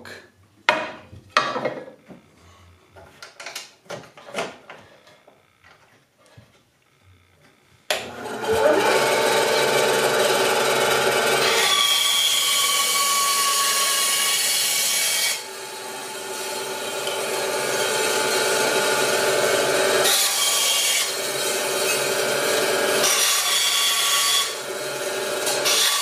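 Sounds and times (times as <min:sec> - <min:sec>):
bandsaw blade cutting wood: 0:07.9 - 0:26.0
bandsaw motor running: 0:07.9 - 0:26.0.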